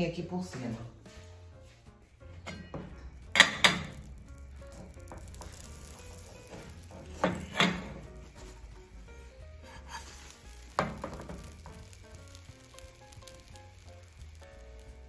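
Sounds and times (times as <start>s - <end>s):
pan clanking on stove grate: 2.4s - 4.2s, 4.8s - 8.1s, 9.8s - 12.4s
faint steady hiss: 3.6s - 15.0s.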